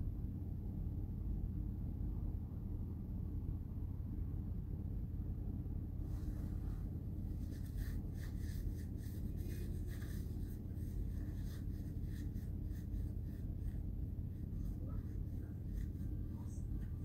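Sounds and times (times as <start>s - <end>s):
steady low hum: 0.0s - 17.0s
faint scratchy rustling: 6.0s - 17.0s.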